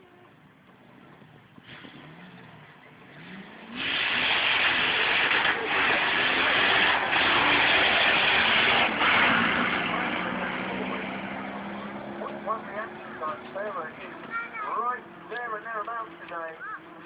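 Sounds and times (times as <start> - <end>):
drag racing car accelerating: 0.9 - 17.0.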